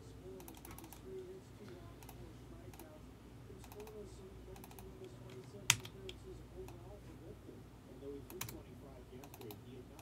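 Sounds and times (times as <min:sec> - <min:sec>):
computer keyboard typing: 0:00.4 - 0:01.0, 0:03.6 - 0:06.8, 0:08.3 - 0:08.6, 0:09.2 - 0:09.6.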